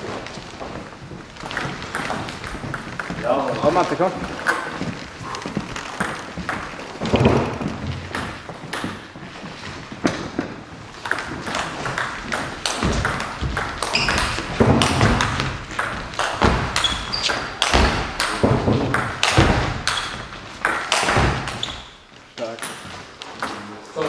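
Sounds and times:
ping-pong ball clicks: 0:11.0 - 0:21.6
shoe squeaks: 0:13.8 - 0:14.6, 0:16.7 - 0:17.6, 0:21.4 - 0:22.1.

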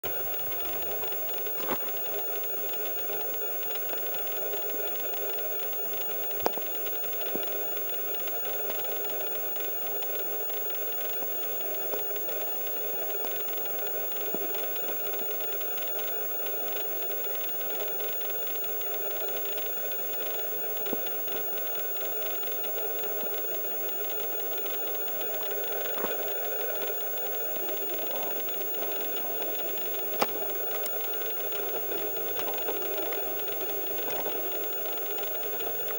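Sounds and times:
motor running: 0:00.0 - 0:08.9, 0:22.3 - 0:35.9.

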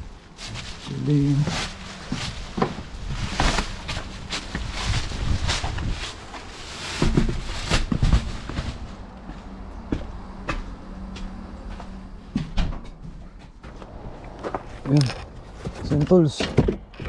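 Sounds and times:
bag thumping: 0:01.4 - 0:08.9
footsteps on concrete steps: 0:07.2 - 0:17.0.

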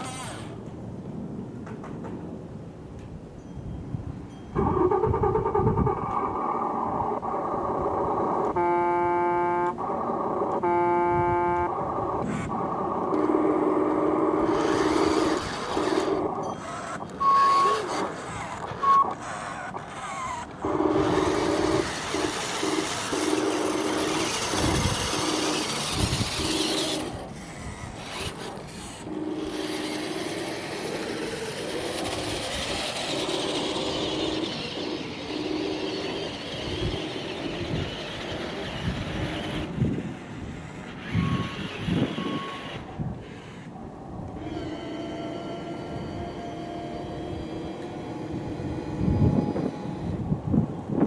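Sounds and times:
whine of drive motors and gears: 0:04.3 - 0:51.0
short high beeps: 0:08.6 - 0:09.7.

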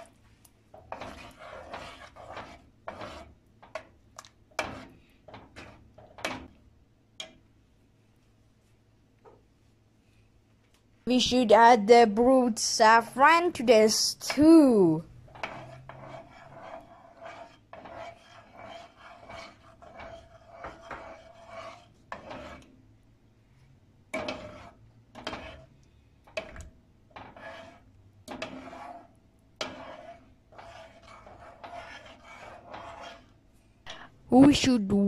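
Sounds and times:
metal spoon scraping pot: 0:00.7 - 0:03.8, 0:04.6 - 0:06.5, 0:15.3 - 0:22.7, 0:24.1 - 0:34.0.

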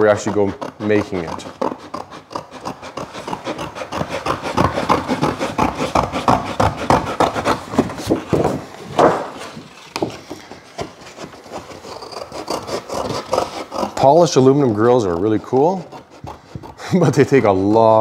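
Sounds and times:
paper rustling: 0:07.2 - 0:13.7
scissors snipping paper: 0:09.7 - 0:18.0.

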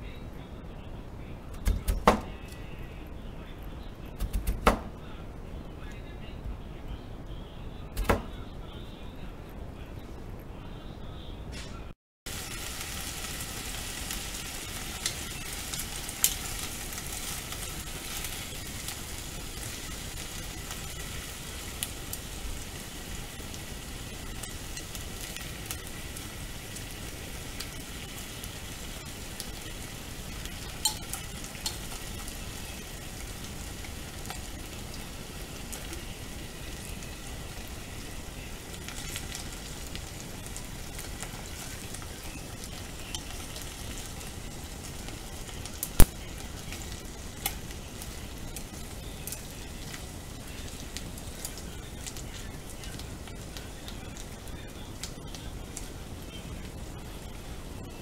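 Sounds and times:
vegetables sizzling in oil: 0:12.3 - 0:58.0.

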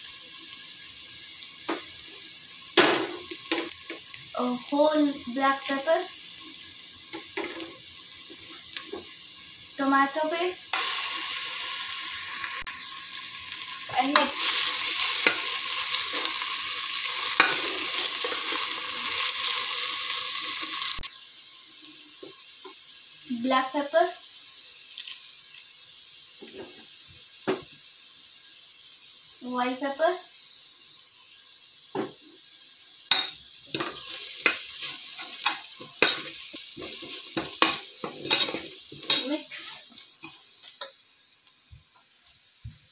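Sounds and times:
onions sizzling in hot oil: 0:00.0 - 0:42.9
spoon knocking and scraping pot: 0:35.4 - 0:39.3.

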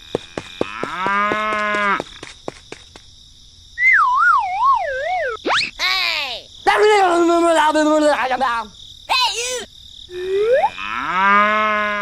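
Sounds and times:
clear pitched tone: 0:03.9 - 0:05.7
warbling siren-like tone: 0:04.0 - 0:05.7.

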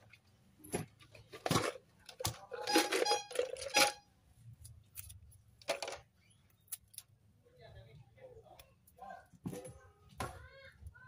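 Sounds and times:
metal parts clinking: 0:02.5 - 0:04.1.

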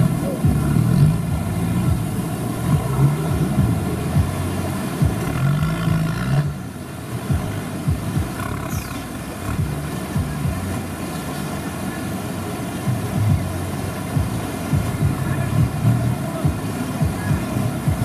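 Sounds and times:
off-road vehicle engine revving: 0:00.0 - 0:18.0.

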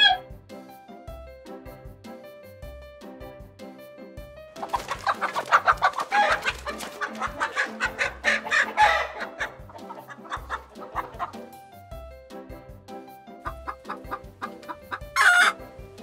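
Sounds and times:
chickens clucking and squawking: 0:00.0 - 0:00.2, 0:04.6 - 0:11.6, 0:13.4 - 0:16.0
background music with beat: 0:00.0 - 0:16.0.

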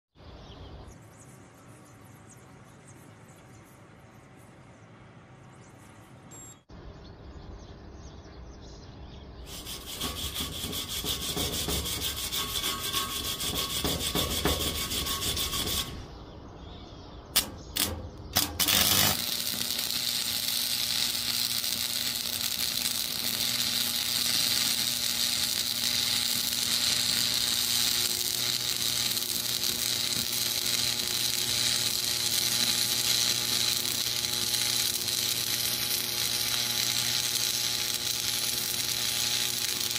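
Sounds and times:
welding arc crackling and sizzling: 0:09.5 - 0:16.1, 0:17.4 - 0:39.9
rough scraping: 0:09.5 - 0:16.2, 0:17.4 - 0:39.9
sharp cracks: 0:17.4 - 0:39.9.

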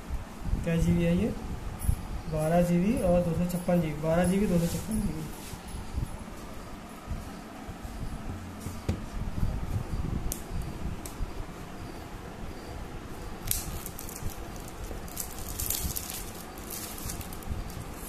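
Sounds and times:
plastic wrap rustling and crinkling: 0:13.4 - 0:18.0.

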